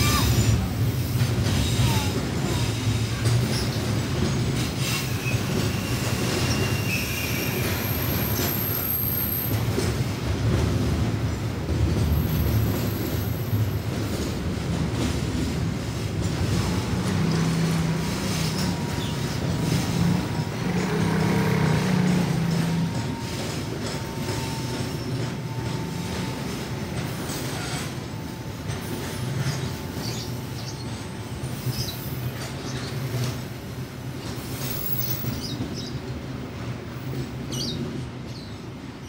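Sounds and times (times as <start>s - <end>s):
freight train wheels rumbling: 0.0s - 39.0s
high-pitched wheel squeal: 4.9s - 9.4s.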